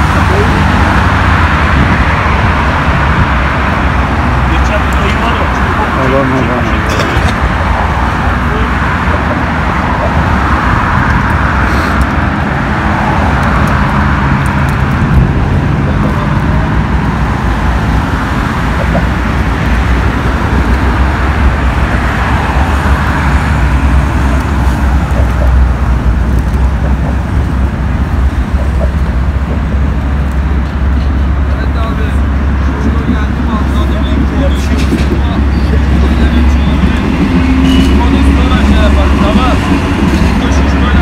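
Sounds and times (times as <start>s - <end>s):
road traffic rumble and hiss: 0.0s - 41.0s.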